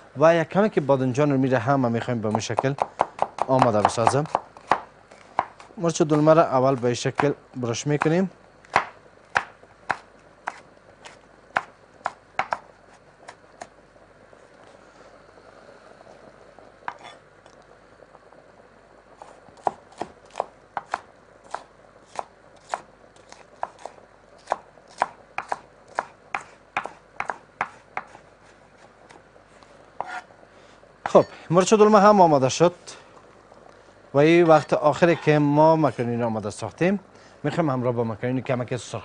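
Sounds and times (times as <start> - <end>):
knife chopping on wooden board: 2.4 - 5.7, 8.7 - 12.6, 19.6 - 28.2, 30.0 - 30.2.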